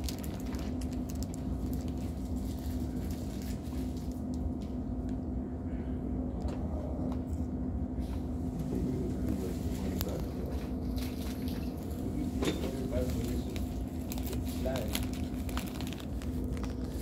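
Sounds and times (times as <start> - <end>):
snack wrapper crackling: 0.0 - 3.0, 13.5 - 17.0
vehicle engine drone: 0.1 - 17.0.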